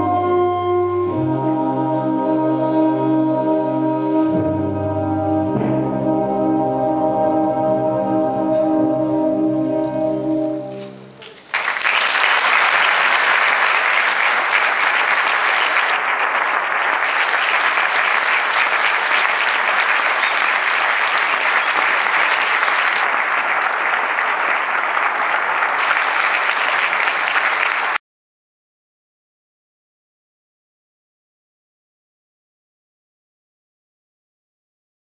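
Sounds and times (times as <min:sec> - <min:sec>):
audience applause: 0:11.2 - 0:28.0.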